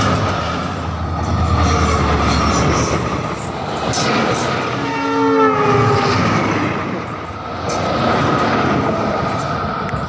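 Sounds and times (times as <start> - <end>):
train wheel and rail noise: 0.0 - 10.0
train horn: 4.2 - 7.2.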